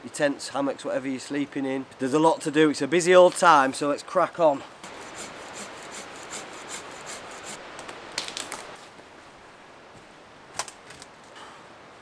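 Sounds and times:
saw cutting branch: 4.8s - 8.8s
sharp cracks: 7.7s - 8.8s.

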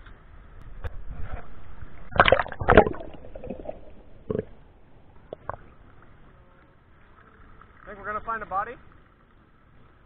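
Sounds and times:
river water splashing and gurgling: 0.8s - 10.0s
loud splashes: 2.1s - 4.0s.

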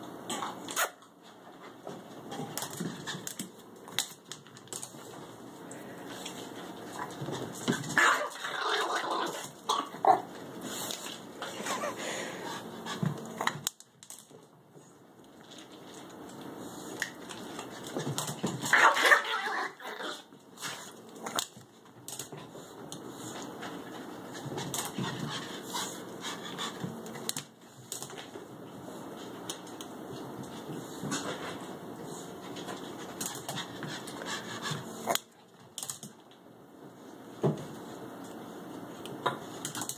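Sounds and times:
excited dog noises: 6.1s - 13.6s, 17.5s - 20.9s.

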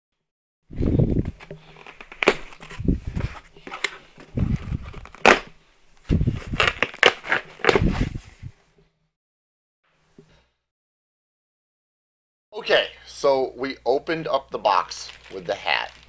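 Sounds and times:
cardboard crunching and ripping: 0.8s - 8.2s.

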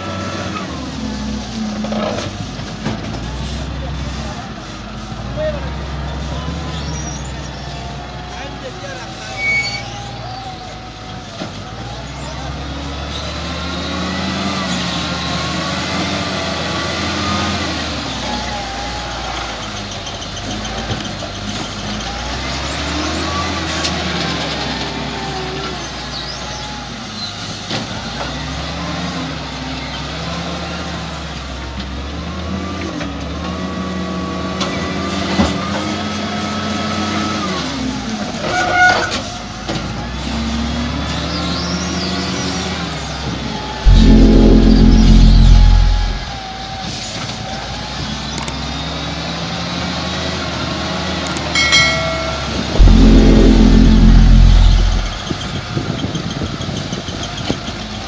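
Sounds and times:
short loud sound: 43.8s - 46.4s, 51.6s - 55.4s.

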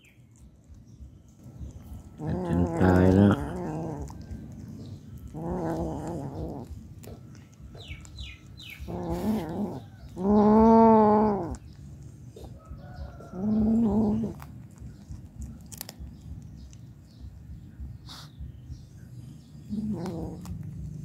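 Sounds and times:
cat growling: 1.7s - 16.2s, 19.6s - 21.0s.

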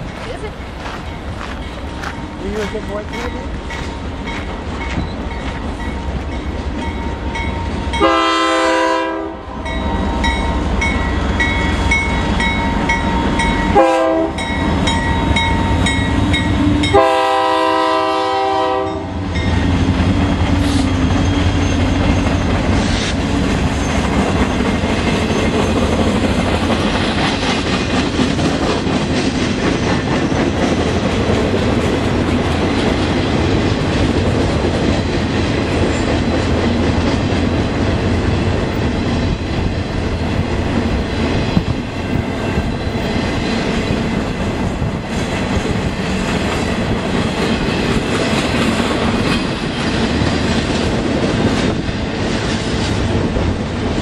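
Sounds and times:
freight train rumbling past: 0.0s - 54.0s
locomotive horn blasts: 7.9s - 9.7s, 13.7s - 14.5s, 16.8s - 19.2s.

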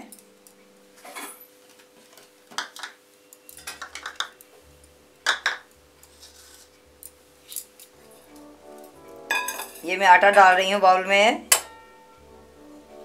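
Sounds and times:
bowls clinking on stone countertop: 2.6s - 4.4s, 5.2s - 6.7s, 9.3s - 10.6s.

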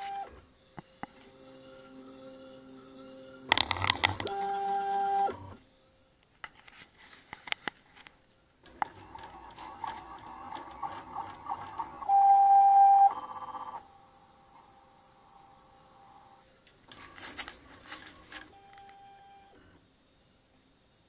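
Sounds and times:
stepper motor whine: 0.0s - 5.6s.

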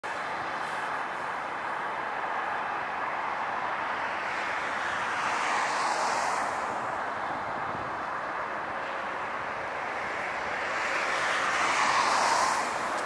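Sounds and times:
jet engines rumbling hiss: 5.2s - 6.9s, 10.8s - 13.0s.

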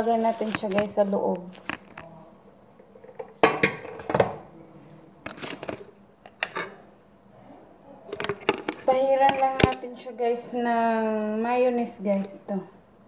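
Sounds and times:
kitchenware clinking: 3.0s - 4.4s, 5.5s - 6.8s
kitchenware knocking and clattering: 3.0s - 4.4s, 6.4s - 6.8s.

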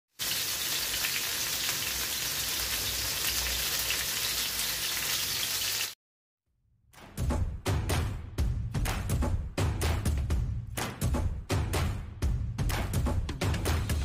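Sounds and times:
fish sizzling in a pan: 0.1s - 6.0s.

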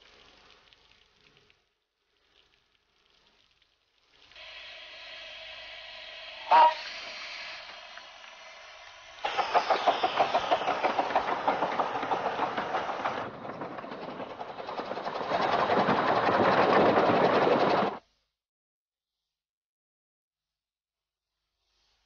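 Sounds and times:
steam locomotive chuffing: 4.4s - 18.0s.

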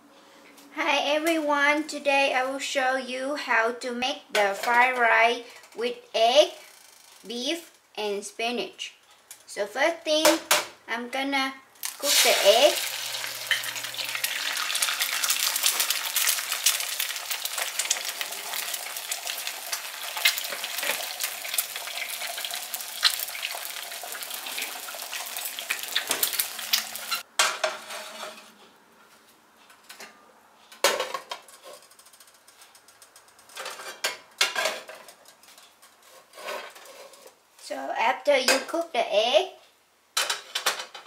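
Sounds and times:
egg sizzling in a frying pan: 11.8s - 27.3s.

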